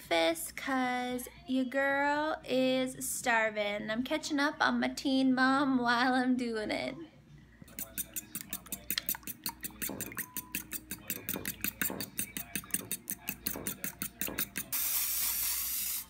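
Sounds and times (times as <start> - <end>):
fork beating eggs in a bowl: 7.7 - 15.5
cooking spray hissing: 13.9 - 16.0.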